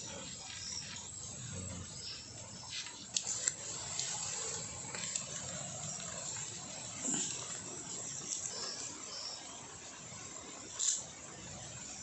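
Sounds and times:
wood fire hissing: 0.0s - 12.0s
fire crackles: 2.0s - 12.0s.

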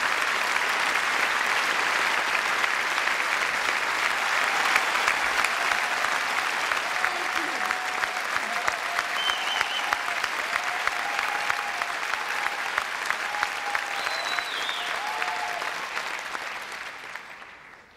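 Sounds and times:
audience applauding: 0.0s - 17.9s
cheers and whistles: 4.2s - 15.9s.

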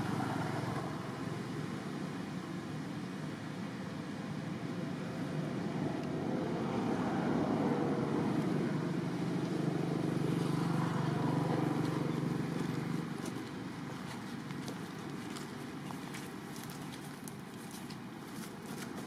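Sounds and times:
vehicle engine passing: 5.0s - 17.5s.

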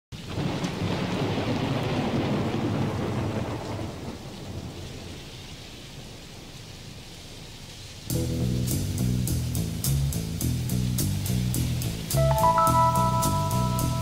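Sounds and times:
thunder rumbling: 0.2s - 6.6s
rain hissing: 0.2s - 14.0s.

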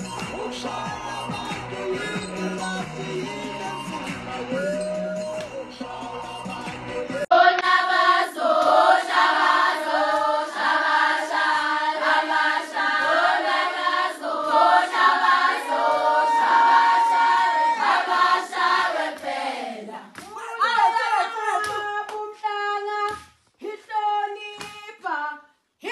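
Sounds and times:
music: 0.0s - 20.3s
women and girls singing in chorus: 7.2s - 24.4s.

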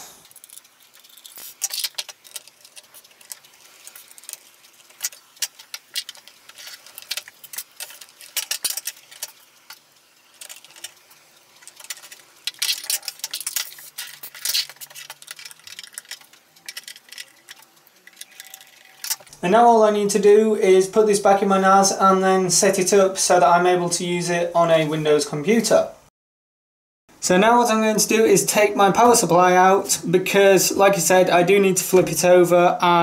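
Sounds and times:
loose screws and brackets handled: 11.6s - 19.3s.

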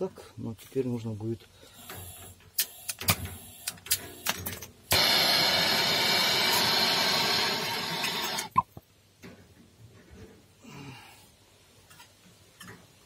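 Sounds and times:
gas torch hissing: 4.9s - 8.5s.

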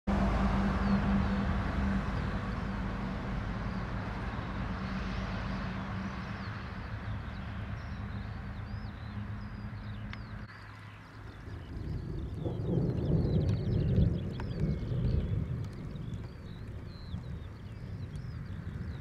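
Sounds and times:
constant low drone: 0.1s - 19.0s
small birds chirping: 6.0s - 19.0s.

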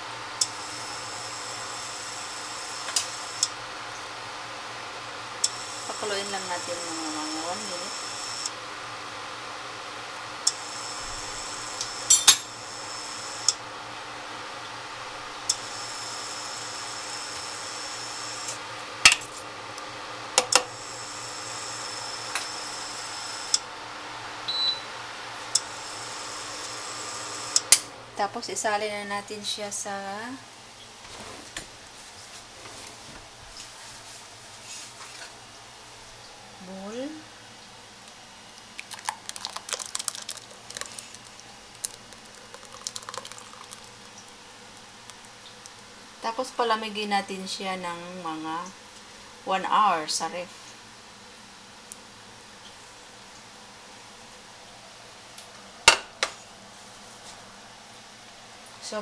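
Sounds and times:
saucepan simmering hiss: 0.0s - 28.4s, 33.7s - 46.8s.

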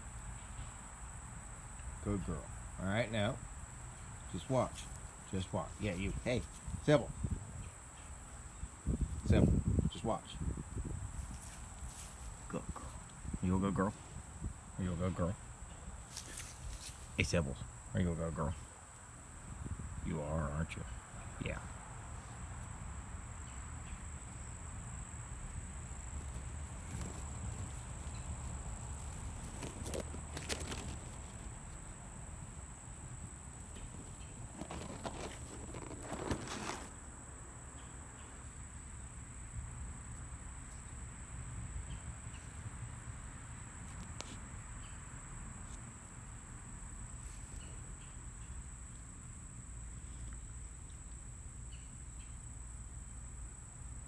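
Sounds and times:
insects singing: 0.0s - 54.0s
grass rustling: 4.1s - 9.8s, 10.4s - 17.8s, 21.2s - 37.0s.

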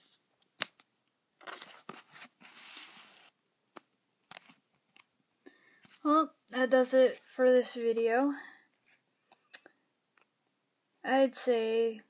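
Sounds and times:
cards rustling and scraping: 1.4s - 5.1s, 7.1s - 7.5s, 8.7s - 9.5s.

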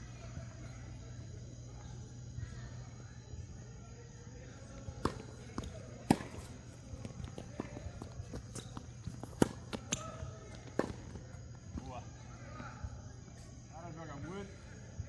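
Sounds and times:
footsteps: 4.9s - 11.9s
tennis ball bouncing on hard court: 5.0s - 6.5s, 7.3s - 10.1s, 10.8s - 11.1s
tennis ball hit with racket: 5.0s - 6.5s, 9.3s - 10.1s.

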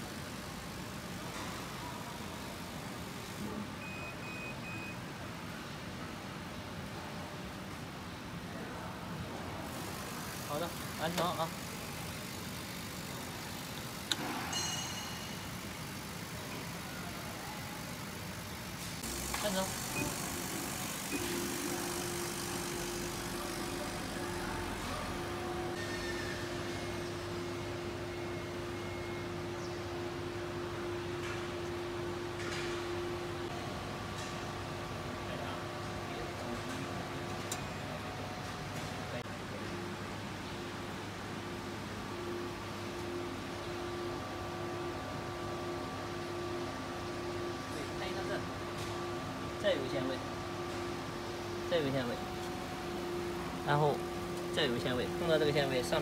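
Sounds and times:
stepper motor humming: 18.6s - 29.3s, 42.3s - 56.0s
stepper motor whine: 19.0s - 29.3s.

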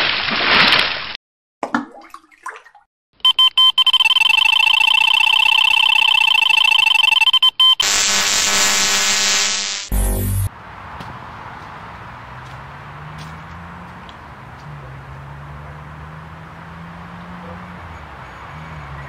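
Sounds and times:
bite alarm beeping: 3.2s - 10.5s
continuous high alarm tone: 3.2s - 10.5s
harsh buzzing tone: 6.8s - 10.5s.

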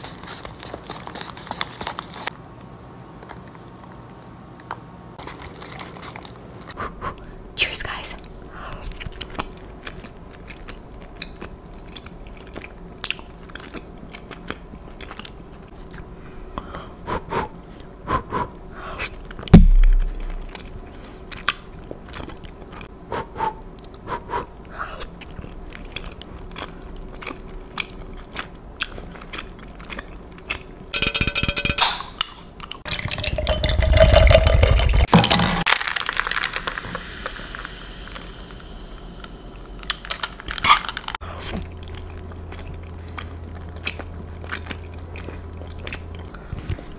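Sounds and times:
person chewing and slurping noodles: 8.4s - 30.9s, 32.5s - 35.1s, 39.6s - 46.9s
heavy thump: 19.5s - 20.4s.

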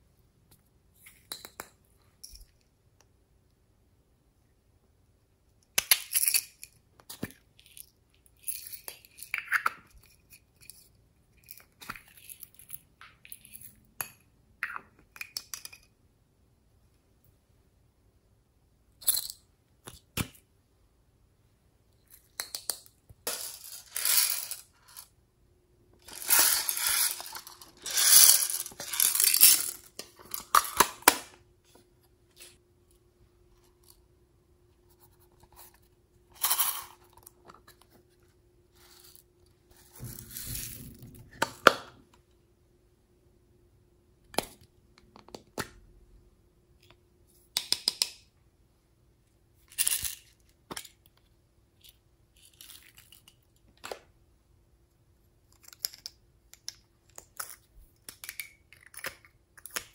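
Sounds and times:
small contents rattling: 23.2s - 25.1s, 26.0s - 31.1s.

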